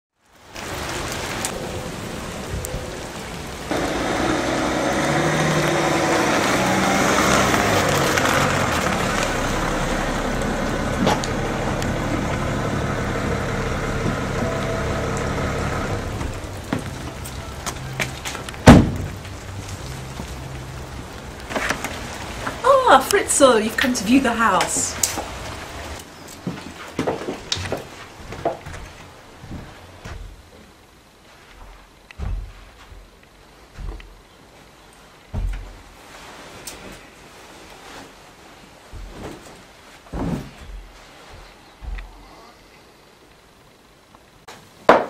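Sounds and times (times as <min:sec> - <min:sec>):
rain pattering: 0:00.1 - 0:40.0, 0:40.7 - 0:44.8
car engine running: 0:03.7 - 0:18.0
loud thump: 0:18.6 - 0:19.2, 0:32.2 - 0:33.0, 0:40.1 - 0:40.8.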